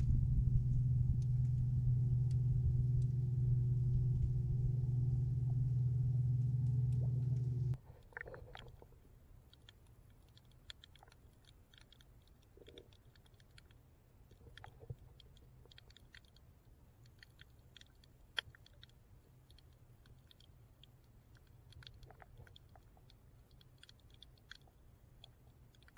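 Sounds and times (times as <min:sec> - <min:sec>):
low underwater hum: 0:00.0 - 0:25.9
small clicks and crackles: 0:06.4 - 0:25.9.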